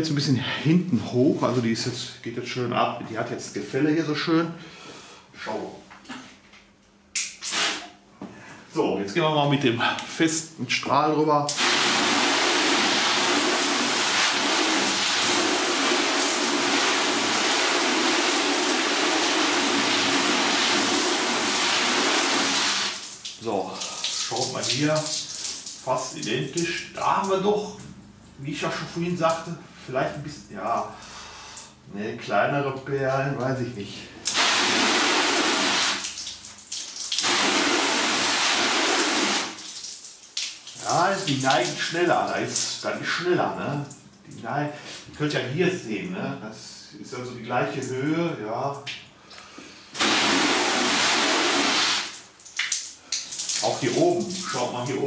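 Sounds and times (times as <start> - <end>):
hose water jet splashing on car: 11.5 - 27.3, 34.3 - 42.8, 50.0 - 54.9.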